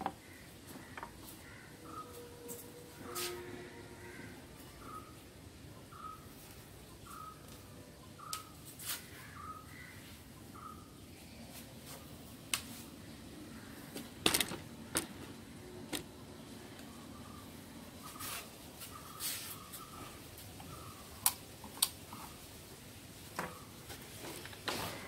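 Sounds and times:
small bird chirping: 5.8 - 11.6
clicks and knocks of handled items: 13.9 - 16.1.

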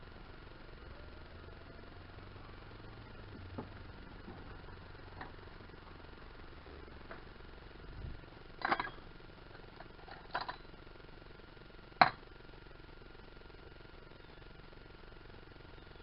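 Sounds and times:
metal tools clinking: 8.6 - 9.0, 9.8 - 10.6.

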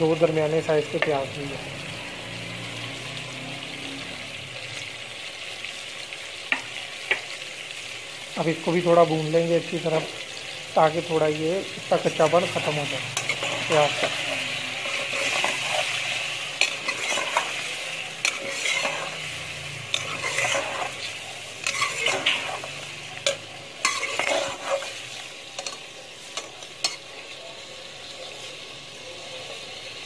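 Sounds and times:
chicken and onions sizzling in oil: 0.0 - 30.0
metal spoon scraping a pot: 12.6 - 25.8.

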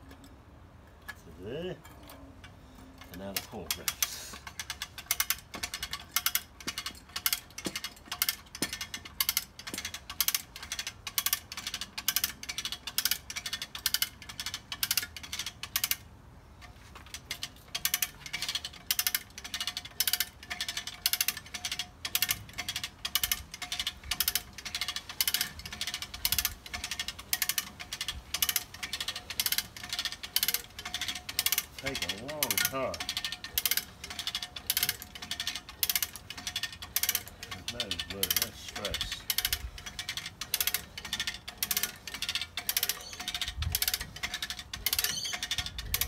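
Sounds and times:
hand winch ratcheting clicks: 0.0 - 46.0.

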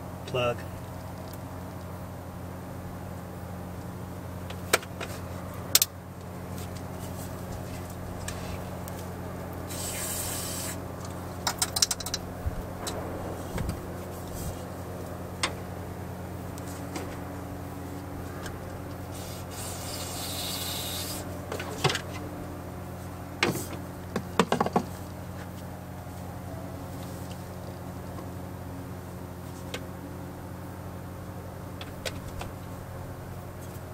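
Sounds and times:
aerosol spray hissing: 9.7 - 10.8.

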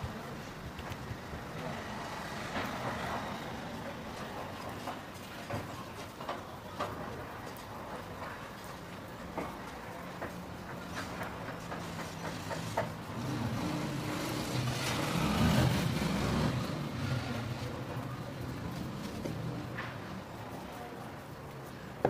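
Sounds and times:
motor vehicle passing: 11.6 - 20.2.

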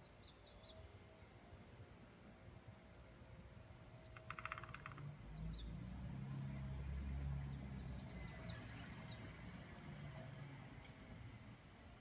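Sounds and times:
woodpecker tapping on wood: 4.1 - 5.2.

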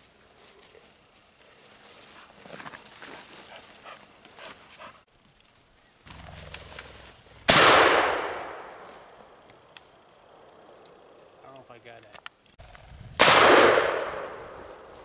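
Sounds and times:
footsteps rustling through brush: 0.0 - 7.4, 8.3 - 9.4, 13.9 - 15.0
shotgun shot: 7.5 - 8.8, 13.2 - 14.7.

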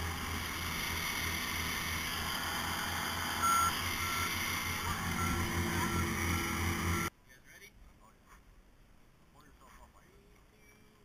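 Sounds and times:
tracked vehicle engine throbbing: 0.0 - 7.1
reversing alarm beeping: 2.6 - 7.1.

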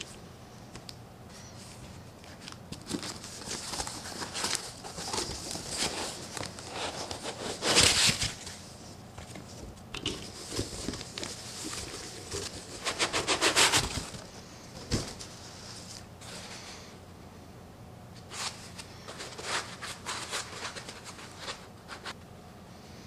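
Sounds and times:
cardboard flaps rustling: 1.8 - 8.6, 9.2 - 16.1
foam scraping on cardboard: 12.7 - 14.0.

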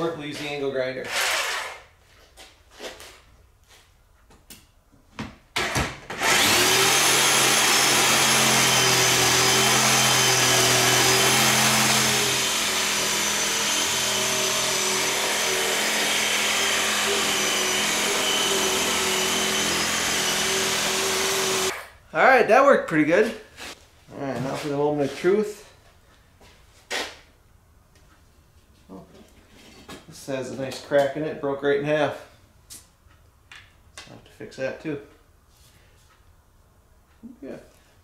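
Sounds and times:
jigsaw cutting metal: 1.1 - 1.8, 5.6 - 21.8.

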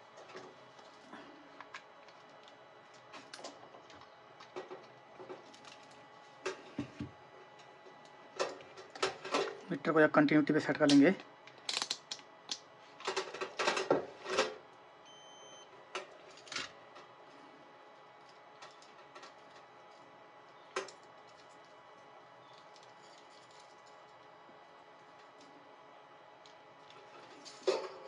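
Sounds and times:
multimeter beep: 15.0 - 15.7.

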